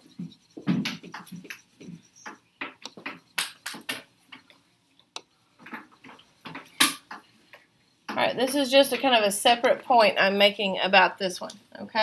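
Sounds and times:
stylus scratching on touchscreen: 0.0 - 3.4.

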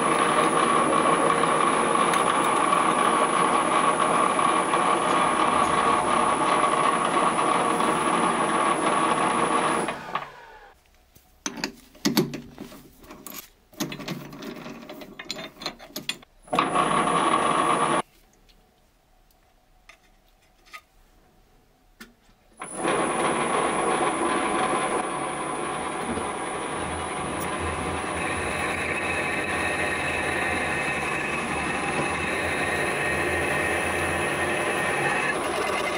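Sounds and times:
lathe drilling steel: 0.0 - 10.7, 16.5 - 18.0, 22.6 - 35.9.

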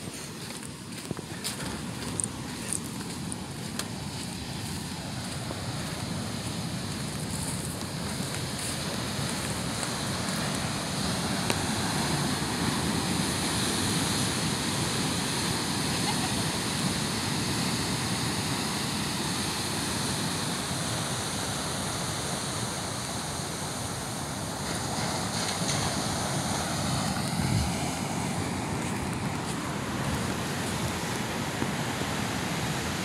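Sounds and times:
ocean surf breaking: 1.4 - 33.0
wind buffeting microphone: 25.3 - 33.0.

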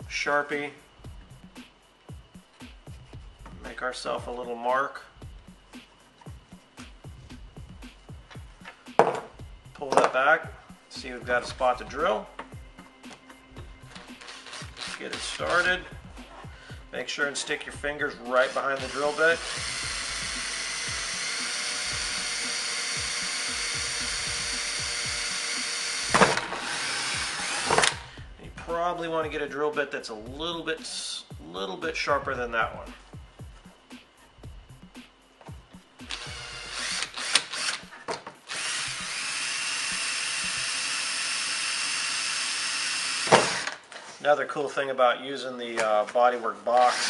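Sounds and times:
drill grinding through fiberglass: 14.1 - 15.9, 18.2 - 28.1, 36.1 - 43.8, 46.8 - 47.0.

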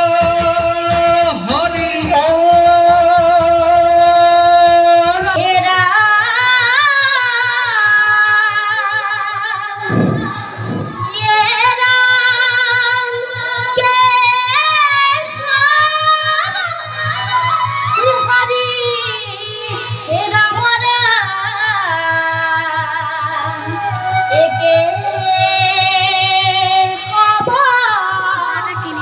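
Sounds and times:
fast low beat: 0.0 - 29.0
deep drum strokes: 9.8 - 14.6.

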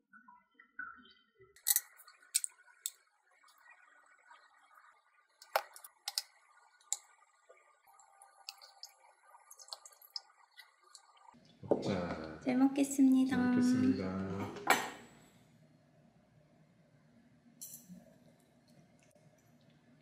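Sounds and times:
faint steady hum: 0.8 - 20.0.

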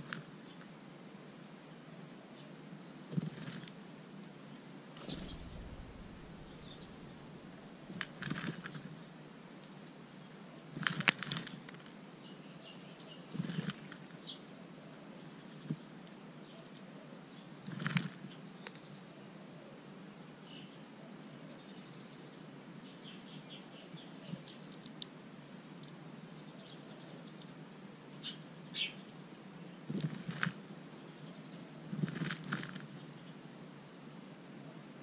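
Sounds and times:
bird wings fluttering in soil: 3.2 - 3.7, 5.0 - 8.9, 10.8 - 11.9, 13.4 - 14.3, 17.6 - 18.8, 29.9 - 30.7, 31.9 - 33.0.

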